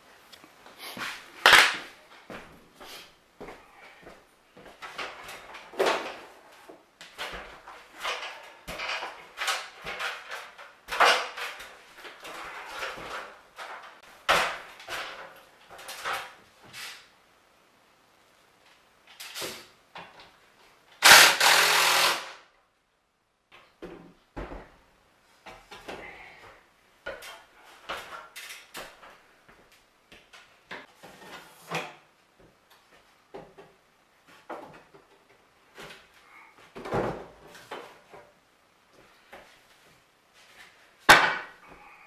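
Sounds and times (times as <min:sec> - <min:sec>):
loud harsh noise: 0:21.0 - 0:22.4.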